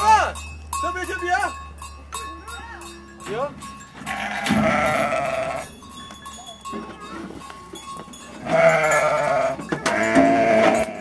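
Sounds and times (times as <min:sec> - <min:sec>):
sheep bleating: 0:04.0 - 0:05.7, 0:08.4 - 0:11.0.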